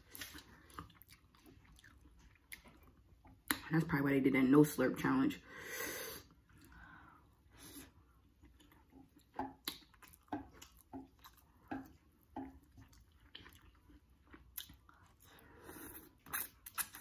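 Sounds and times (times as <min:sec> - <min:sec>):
chewing noodles: 0:00.0 - 0:03.6, 0:07.6 - 0:17.0
wet mouth clicks: 0:09.4 - 0:12.6.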